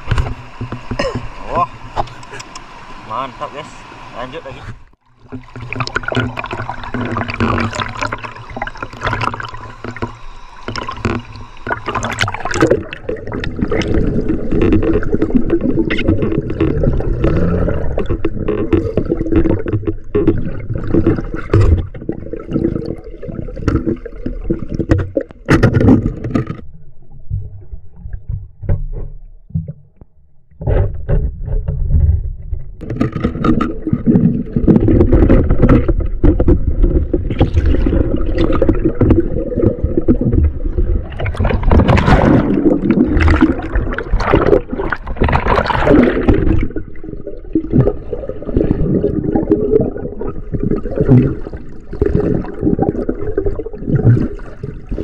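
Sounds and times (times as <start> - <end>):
river water gurgling and splashing: 0.0 - 26.7, 32.8 - 55.0.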